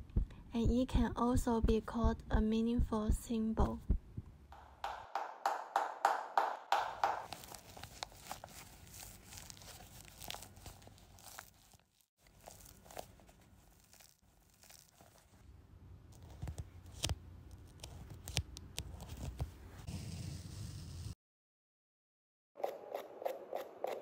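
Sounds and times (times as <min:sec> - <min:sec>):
shoes and ribbons crinkling: 0:07.2 - 0:15.4.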